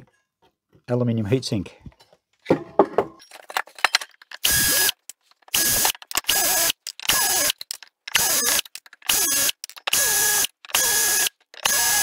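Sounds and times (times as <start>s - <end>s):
power screwdriver running: 4.4s - 12.0s.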